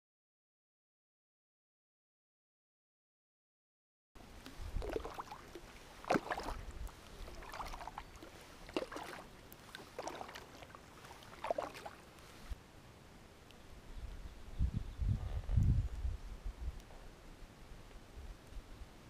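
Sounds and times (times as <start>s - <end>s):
paddle splashing into water: 4.4s - 12.6s.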